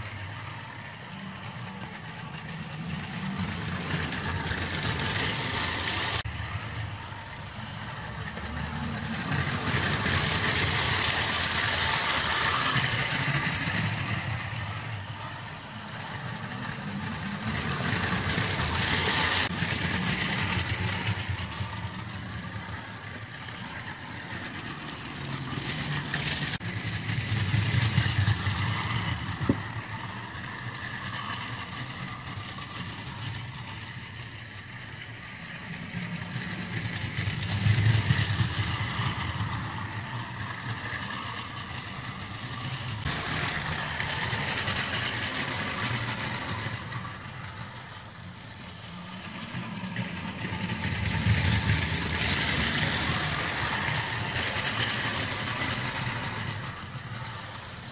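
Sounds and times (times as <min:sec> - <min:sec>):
toy train whirring and rattling: 0:00.0 - 0:57.9.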